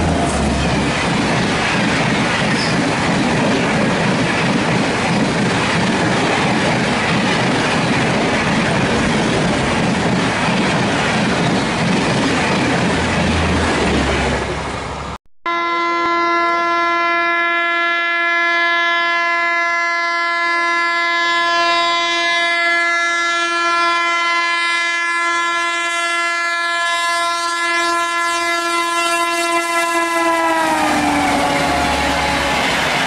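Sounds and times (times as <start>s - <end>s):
train wheels clattering on rails: 0.0s - 14.5s
train horn blast: 15.5s - 33.0s.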